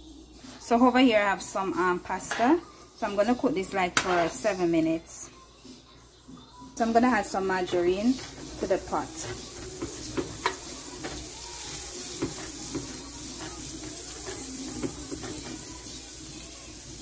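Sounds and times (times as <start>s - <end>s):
margarine sizzling in frying pan: 7.7s - 17.0s
utensil clicking against pan: 9.2s - 15.7s.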